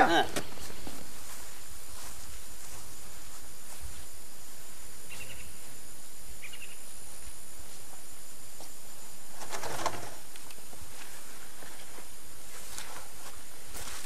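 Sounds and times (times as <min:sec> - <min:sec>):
high insect drone: 0:00.0 - 0:14.0
bird chirps: 0:05.1 - 0:05.7, 0:06.4 - 0:06.9.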